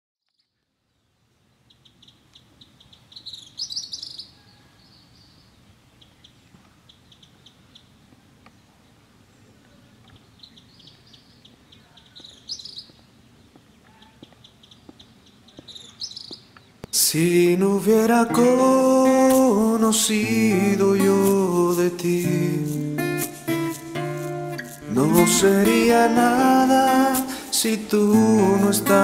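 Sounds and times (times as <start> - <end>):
faint outdoor background: 0.2 - 29.0
birds chirping and calling: 1.6 - 8.6, 9.8 - 17.0.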